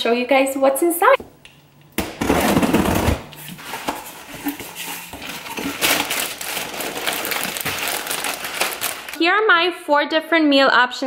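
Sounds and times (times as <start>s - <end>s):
plastic grocery bags rustling: 2.4s - 9.3s.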